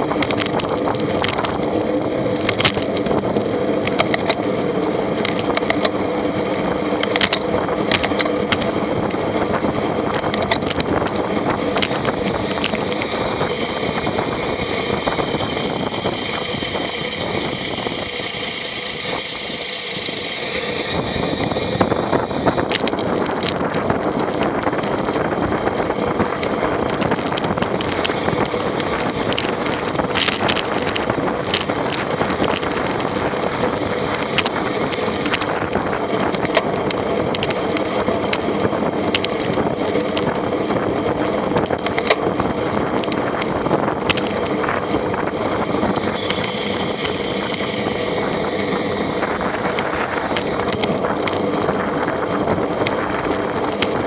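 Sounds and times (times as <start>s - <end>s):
vehicle engine running: 0.0s - 54.0s
rattling clicks: 0.1s - 1.6s, 2.3s - 3.2s, 5.2s - 6.0s, 7.0s - 9.2s, 10.1s - 19.8s.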